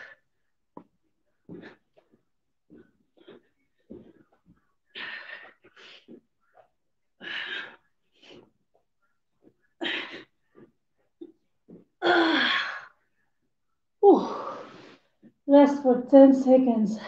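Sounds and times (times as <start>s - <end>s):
woman breathing hard: 1.4s - 8.6s, 9.4s - 10.8s.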